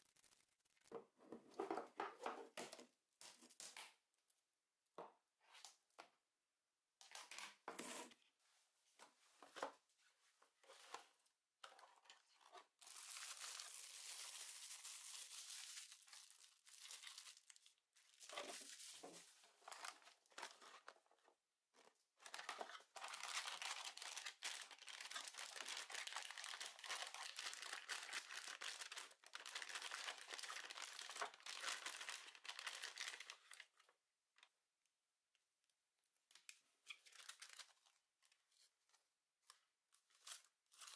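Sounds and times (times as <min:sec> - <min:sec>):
foil bag crinkling and tearing: 0:12.8 - 0:19.0, 0:22.3 - 0:33.6.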